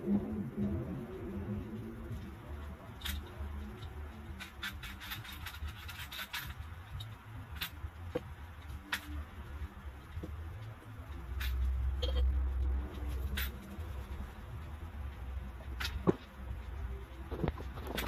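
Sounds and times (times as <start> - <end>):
low steady rumble: 0.0 - 18.0.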